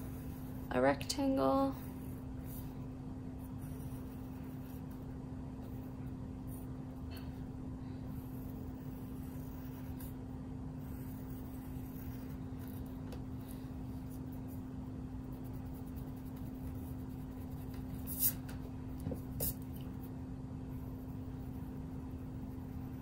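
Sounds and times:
pencil scratching on paper: 0:00.0 - 0:06.7, 0:08.1 - 0:10.2, 0:10.8 - 0:18.5
low electrical hum: 0:00.0 - 0:23.0
eraser rubbing on paper: 0:15.3 - 0:18.5.

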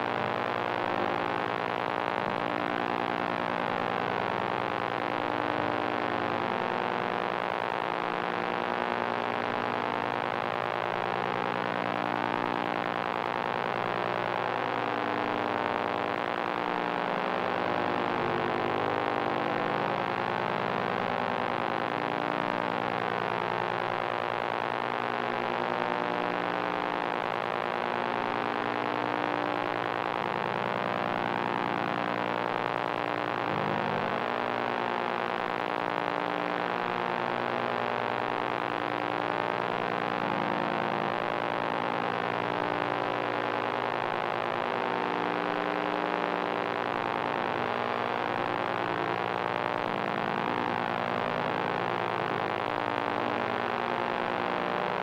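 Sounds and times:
electronic noise drone: 0:13.5 - 0:23.9, 0:28.4 - 0:55.0.

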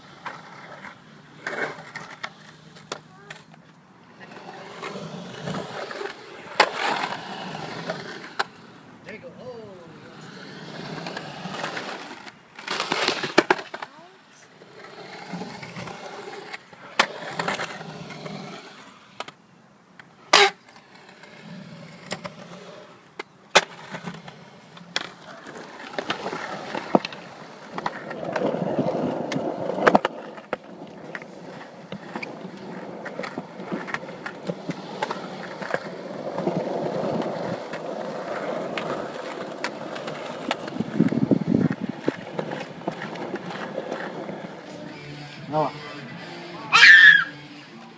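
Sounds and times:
skateboard wheels rolling on concrete: 0:00.0 - 0:47.9
skateboard clacks: 0:10.9 - 0:14.0, 0:23.1 - 0:45.0.

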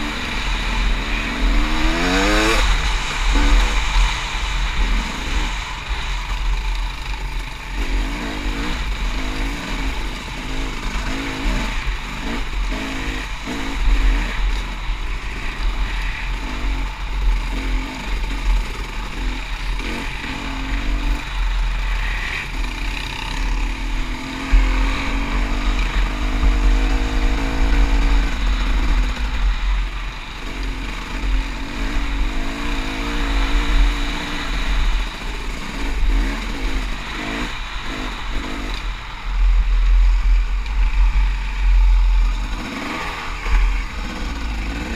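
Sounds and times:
dirt bike engine revving: 0:00.0 - 0:44.9.

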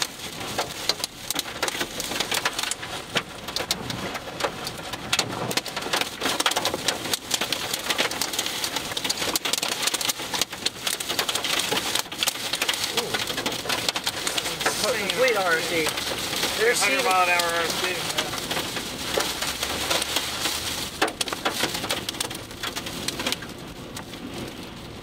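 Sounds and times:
rain and hail pelting car roof: 0:00.0 - 0:25.0.

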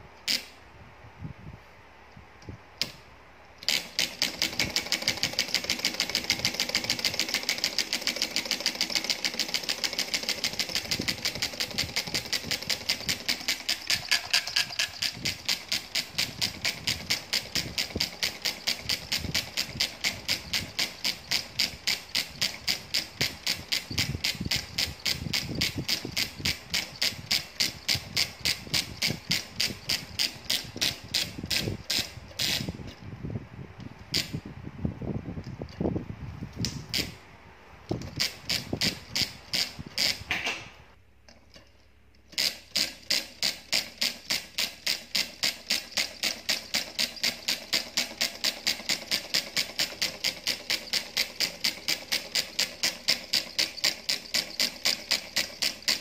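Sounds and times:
solenoid engine clacking: 0:03.6 - 0:32.8, 0:42.3 - 0:56.0.

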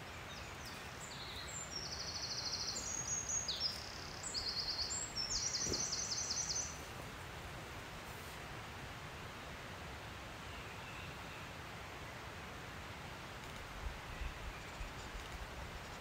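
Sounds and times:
background hiss: 0:00.0 - 0:16.0
songbird trilling: 0:00.6 - 0:06.8.

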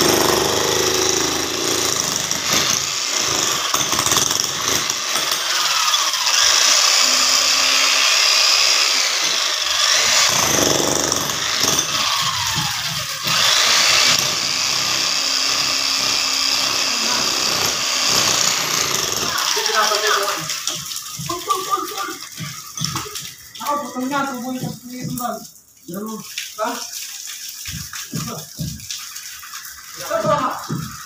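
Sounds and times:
demolition hammer chiselling ground: 0:00.0 - 0:23.5, 0:30.0 - 0:31.0.

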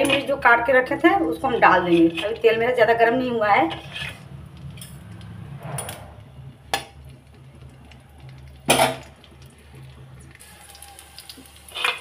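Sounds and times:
metal kitchenware clattering: 0:00.0 - 0:00.6, 0:01.5 - 0:02.7, 0:03.5 - 0:06.9, 0:08.7 - 0:09.1, 0:11.7 - 0:12.0
low steady hum: 0:00.0 - 0:11.7.

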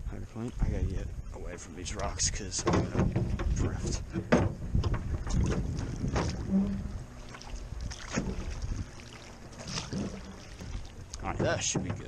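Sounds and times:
water swishing: 0:00.5 - 0:12.0
oars knocking in metal oarlocks: 0:02.4 - 0:07.1, 0:09.4 - 0:12.0
short creak: 0:02.8 - 0:11.3.

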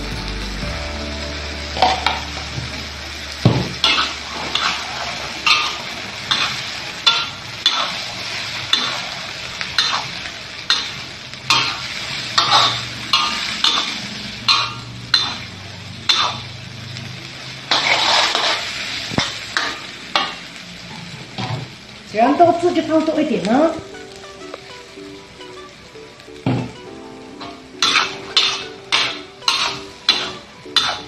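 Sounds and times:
noodles sizzling: 0:00.0 - 0:31.0
metal spatula scraping wok: 0:01.8 - 0:21.8, 0:27.4 - 0:31.0.

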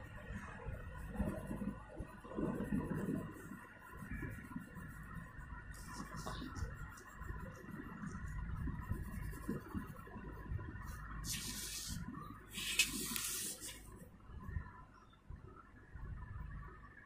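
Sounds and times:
pencil scraping on paper: 0:01.0 - 0:10.1, 0:11.2 - 0:13.9.

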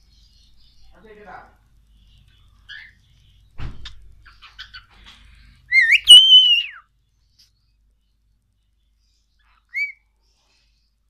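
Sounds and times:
cockatiel chirps: 0:05.7 - 0:06.8, 0:09.5 - 0:10.0
cockatiel whistling: 0:05.7 - 0:06.8, 0:09.7 - 0:10.0.

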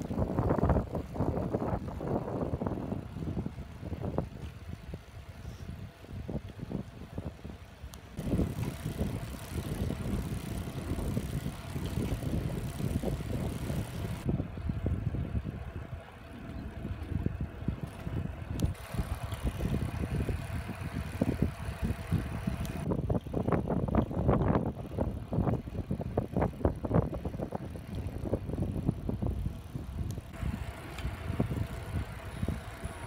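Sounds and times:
tyres humming on asphalt: 0:00.0 - 0:33.0
wind buffeting microphone: 0:00.0 - 0:33.0.

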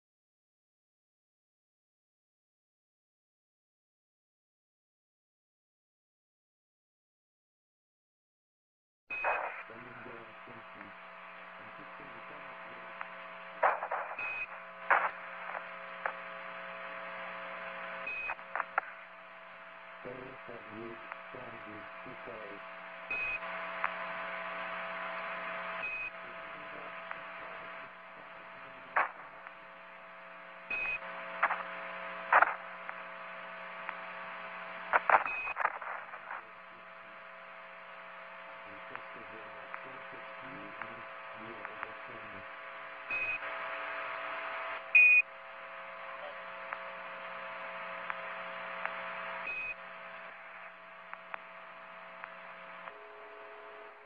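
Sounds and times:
radio hiss and hum: 0:09.1 - 0:54.0
garbled radio voices: 0:09.2 - 0:16.3, 0:19.9 - 0:29.6, 0:38.5 - 0:44.8.

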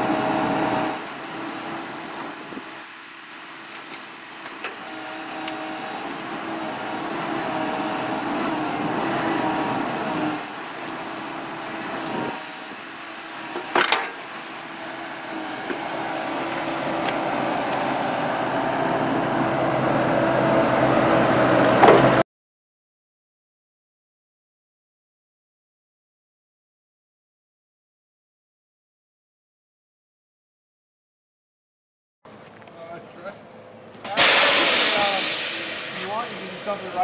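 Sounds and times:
excavator diesel engine under load: 0:00.0 - 0:22.2, 0:32.3 - 0:37.0
hydraulics working: 0:00.0 - 0:22.2, 0:32.7 - 0:37.0.

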